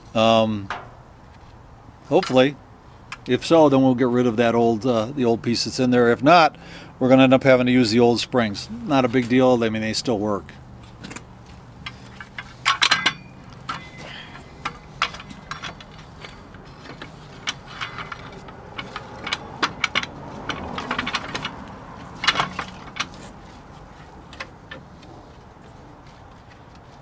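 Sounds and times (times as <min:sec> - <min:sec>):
metallic clinks and clanks: 0:11.8 - 0:23.4.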